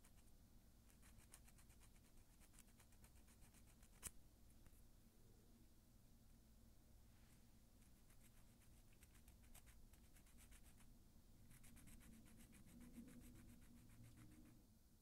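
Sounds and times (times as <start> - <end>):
nail file scratching fingernail: 0.0 - 4.2, 7.8 - 10.9, 11.5 - 14.6.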